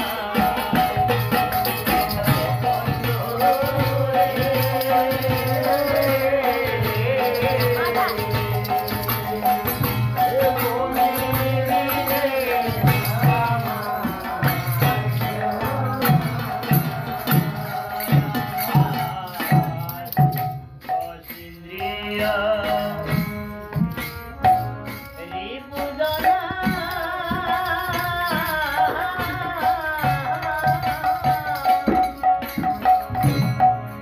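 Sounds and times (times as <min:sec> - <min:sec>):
harmonium drone: 0:00.0 - 0:18.7, 0:21.9 - 0:26.6
man singing: 0:00.0 - 0:33.8
small hand cymbals jingling: 0:00.0 - 0:34.0.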